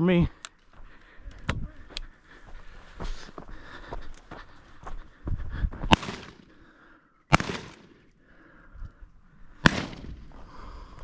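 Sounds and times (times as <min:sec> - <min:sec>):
shotgun shots with echo: 0:05.9 - 0:06.5, 0:07.3 - 0:08.1, 0:09.6 - 0:10.3.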